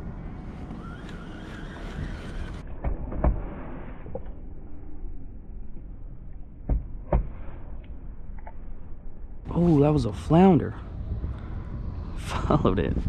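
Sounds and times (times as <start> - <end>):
wind buffeting microphone: 0.0 - 2.8, 9.4 - 13.0
low rumble: 1.8 - 13.0.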